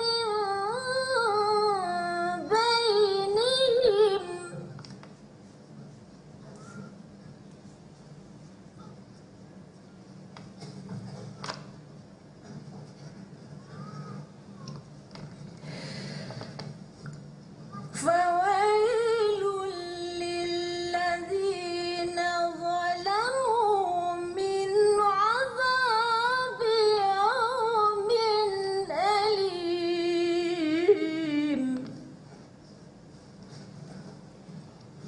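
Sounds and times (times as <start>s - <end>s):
woman reciting melodically: 0.0s - 5.1s, 17.6s - 32.5s.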